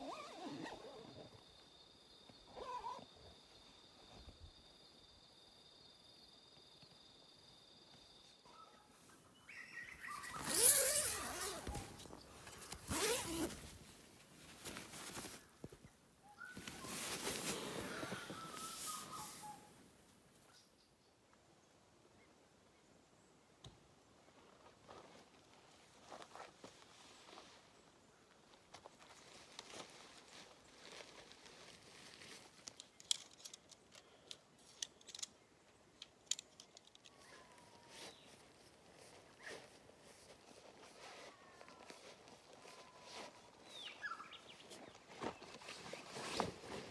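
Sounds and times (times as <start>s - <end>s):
zipper on mesh door pulled open: 0.0s - 1.2s, 2.5s - 3.0s, 10.2s - 13.6s
tent fabric rustling: 0.0s - 1.3s, 2.5s - 3.0s, 9.9s - 19.8s, 28.9s - 33.3s, 37.3s - 46.9s
tent pole sections clicking: 32.2s - 37.6s.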